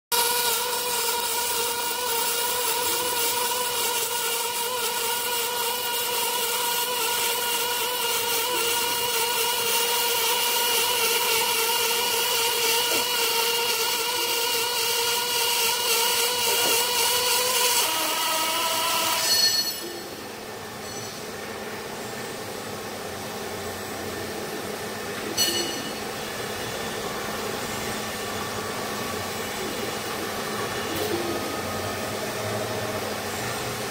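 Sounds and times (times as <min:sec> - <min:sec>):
welding arc hissing crackle: 0:00.1 - 0:21.9.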